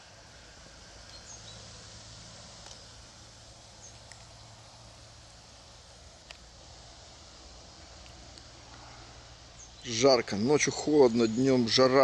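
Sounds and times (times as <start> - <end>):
steady hiss: 0.0 - 12.0
high bird chirps: 1.0 - 1.7.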